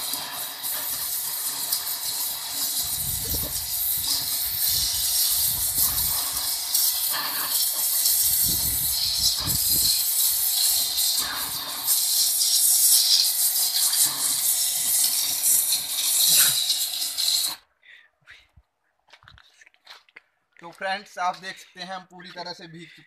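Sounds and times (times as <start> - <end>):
pressure washer spray hissing: 0.0 - 17.6.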